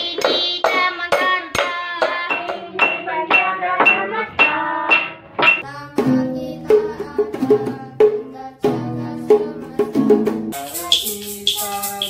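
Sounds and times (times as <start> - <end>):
hand drum percussion: 4.9 - 12.0
acoustic guitar: 5.2 - 12.0.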